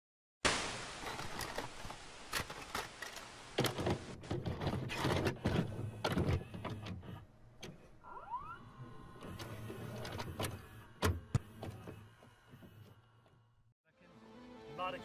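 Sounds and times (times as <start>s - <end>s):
hiss: 0.5s - 2.6s
tape mechanism clicks and clunks: 2.3s - 8.0s, 8.9s - 12.9s.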